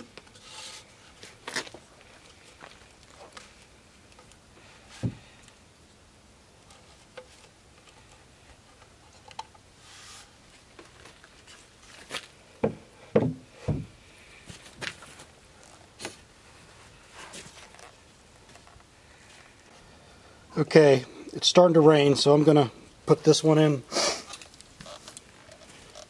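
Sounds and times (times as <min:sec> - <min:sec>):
wooden knocks and thumps: 0:05.0 - 0:05.2, 0:12.6 - 0:14.0.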